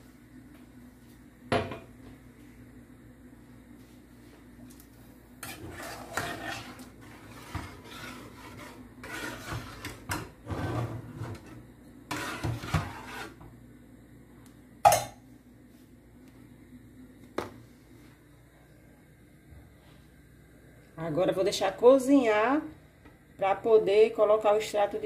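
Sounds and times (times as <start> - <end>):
metal spoon scraping a saucepan: 5.4 - 13.4.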